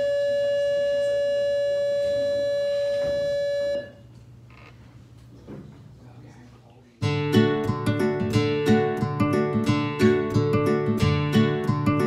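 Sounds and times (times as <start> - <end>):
loud electronic beep tone: 0.0 - 4.0.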